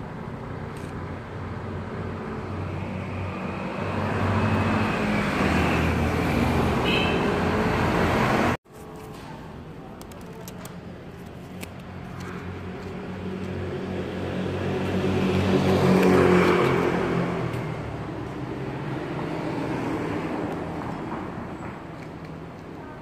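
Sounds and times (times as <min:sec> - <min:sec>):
vehicle engine passing by: 0:01.7 - 0:08.6, 0:13.1 - 0:21.1.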